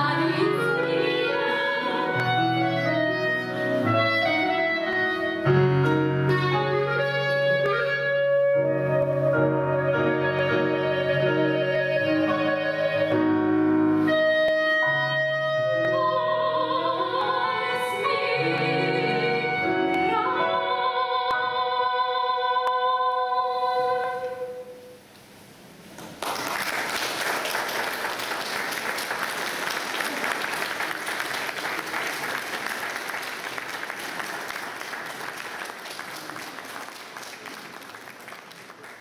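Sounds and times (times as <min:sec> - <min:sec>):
soprano singing: 0:00.0 - 0:24.8
piano and clarinet: 0:00.1 - 0:22.5
audience applauding: 0:26.0 - 0:39.0.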